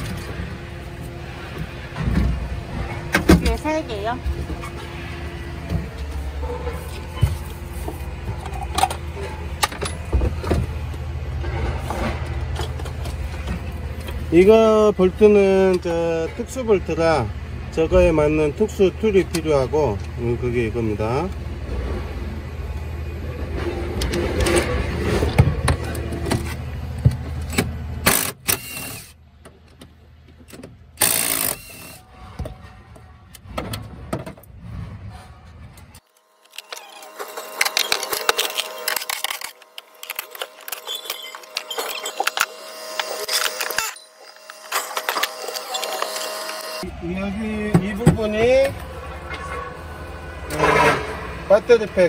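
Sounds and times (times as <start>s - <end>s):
low mechanical hum: 0.0s - 52.0s
power driver bursts: 28.0s - 29.1s, 31.0s - 32.0s.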